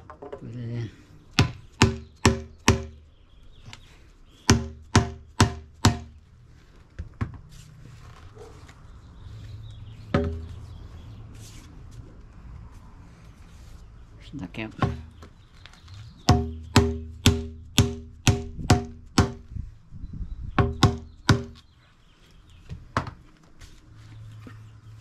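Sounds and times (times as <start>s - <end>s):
rubber mallet knocking pipe: 1.4s - 3.0s, 4.5s - 6.2s, 10.1s - 10.6s, 16.3s - 19.5s, 20.6s - 21.6s.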